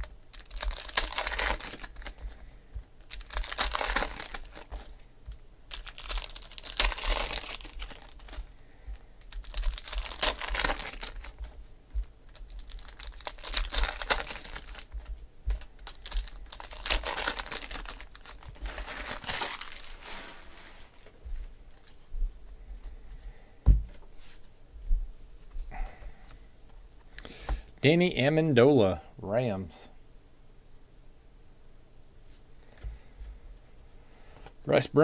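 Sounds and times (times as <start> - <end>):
foil wrappers crinkling and tearing: 0.0 - 8.6, 9.2 - 21.1.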